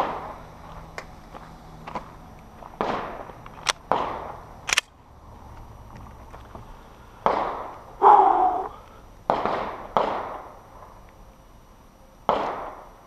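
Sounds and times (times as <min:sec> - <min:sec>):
pistol shots with echo: 0:02.8 - 0:03.3, 0:03.9 - 0:04.4, 0:07.2 - 0:07.7, 0:09.3 - 0:10.6, 0:12.3 - 0:12.9.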